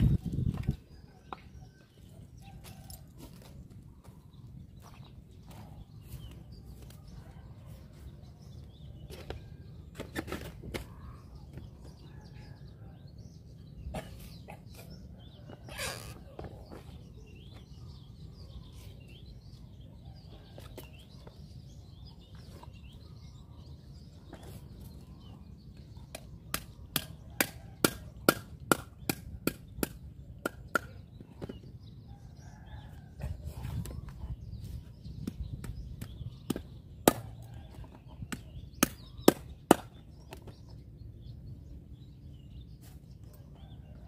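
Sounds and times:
cleaver chopping fish on wood: 26.5s - 31.1s, 38.3s - 40.0s.

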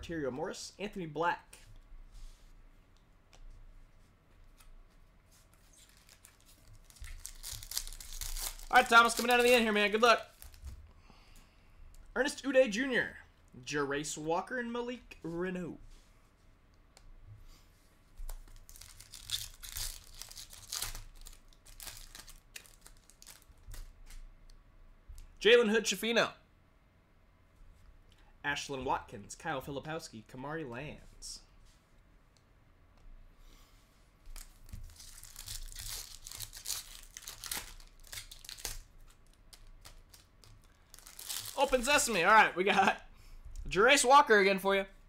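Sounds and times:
foil wrapper tearing and crinkling: 5.9s - 10.7s, 18.3s - 24.0s, 34.4s - 42.2s.

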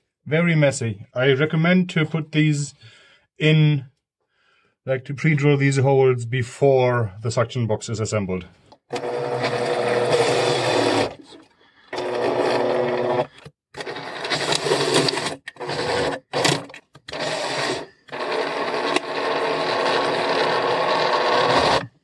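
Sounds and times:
cordless drill driving screws: 8.9s - 11.2s, 11.9s - 21.9s.

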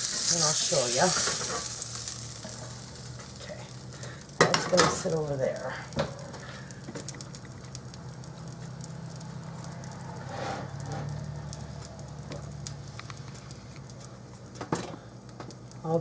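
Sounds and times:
grease crackling and popping: 0.0s - 16.0s
steady low hum: 0.0s - 16.0s
ceramic pot scraping on counter: 10.2s - 11.1s.

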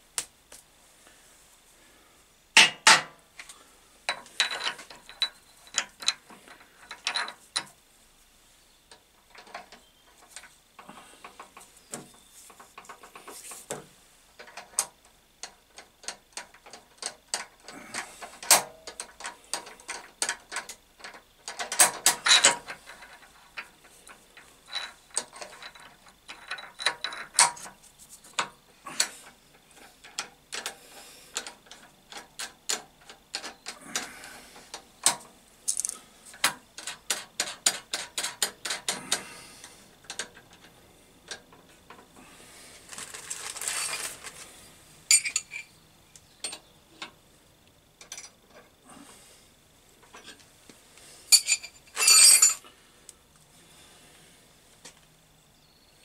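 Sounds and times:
metallic clicks and clinks: 4.1s - 7.7s, 35.0s - 39.2s, 45.1s - 45.7s, 51.3s - 52.6s
scraping hiss: 27.5s - 32.5s, 33.4s - 37.7s.

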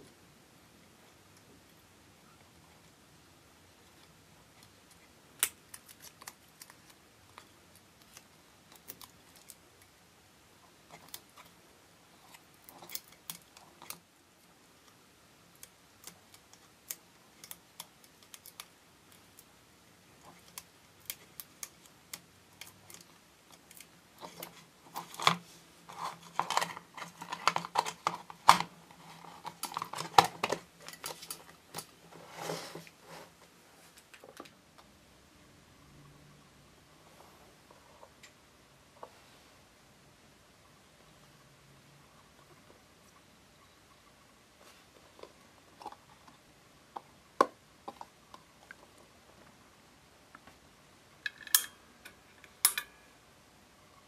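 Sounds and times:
fingers clicking wire on plastic: 14.8s - 19.5s
handling and rubbing noises: 22.8s - 34.4s, 44.5s - 47.2s.

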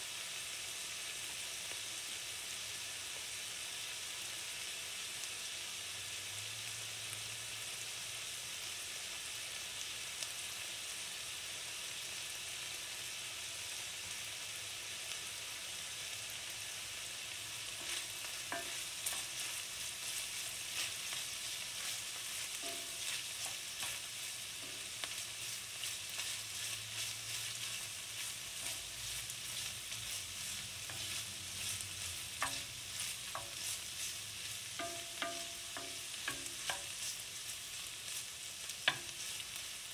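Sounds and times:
onion and bacon sizzling: 0.0s - 39.9s
wooden spoon stirring and scraping: 17.8s - 39.8s.

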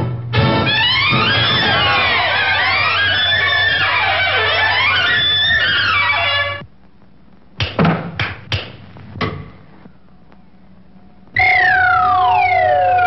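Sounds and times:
descending whistle-like tone: 11.4s - 13.0s.

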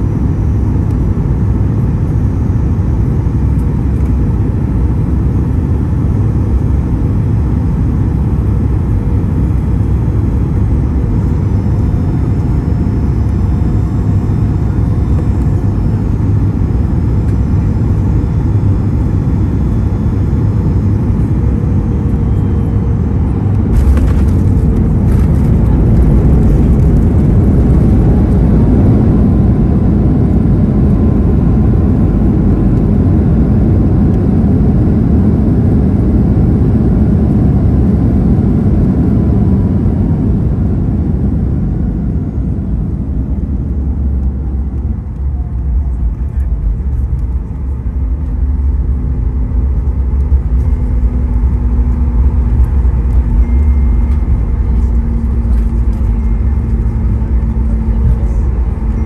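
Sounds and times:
jet engine roar in cabin: 0.0s - 59.0s
landing gear rumble: 23.4s - 29.8s.

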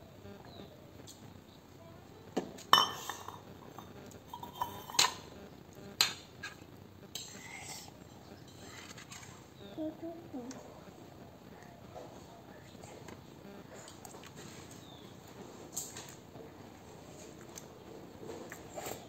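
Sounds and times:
steel tableware clinking: 2.7s - 5.2s.

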